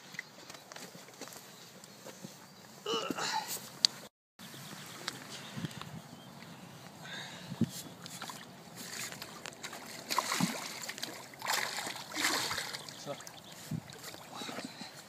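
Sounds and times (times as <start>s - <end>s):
river water sloshing and splashing: 8.0s - 14.8s.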